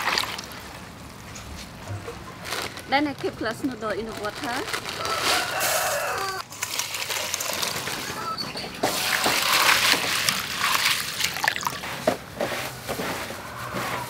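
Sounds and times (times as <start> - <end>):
water sloshing as hand works noodles: 0.0 - 0.8, 8.9 - 12.1
water pouring into a steel bowl: 9.4 - 11.9.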